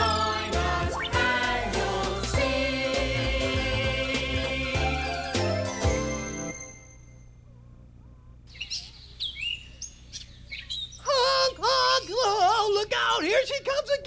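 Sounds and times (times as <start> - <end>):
song music: 0.0 - 7.0
birds chirping: 7.5 - 11.6.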